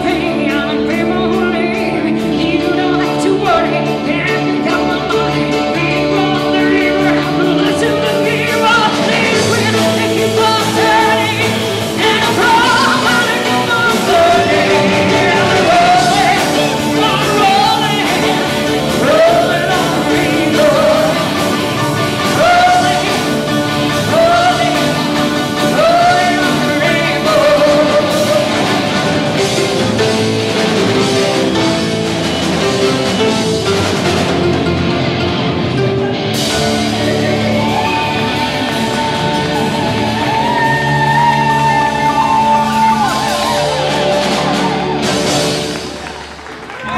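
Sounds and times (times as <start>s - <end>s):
person singing: 0.0s - 45.9s
drum kit: 0.0s - 46.9s
electric bass: 0.0s - 46.9s
electric guitar: 0.0s - 46.9s.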